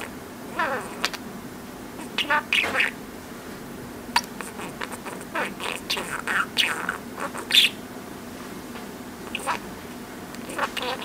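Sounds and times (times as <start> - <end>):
budgerigar chirping: 0.0 - 1.2, 2.0 - 3.0, 4.2 - 7.8, 9.3 - 9.6, 10.5 - 11.0
budgerigar squawk: 2.0 - 3.0, 4.2 - 7.8, 9.3 - 9.6, 10.5 - 11.0.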